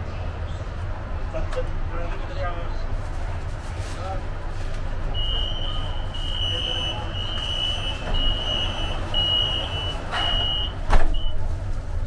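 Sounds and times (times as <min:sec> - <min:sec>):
train low hum: 0:00.0 - 0:12.0
door warning beeps: 0:05.2 - 0:11.4
doors shutting with thud: 0:07.9 - 0:11.4.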